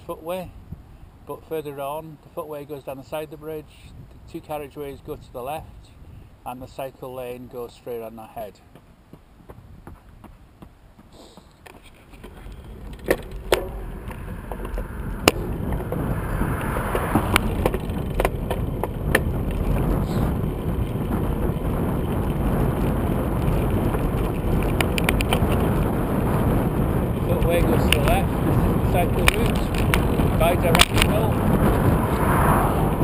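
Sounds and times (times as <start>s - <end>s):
bicycle tyres and wind rushing: 0.0s - 1.4s, 3.8s - 6.4s, 11.7s - 33.0s
bike clicks and rattles: 11.6s - 14.4s, 17.4s - 26.6s, 29.2s - 31.3s.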